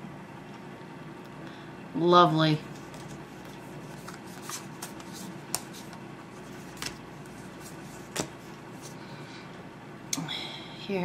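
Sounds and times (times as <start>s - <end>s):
card snaps: 8.1s - 8.4s.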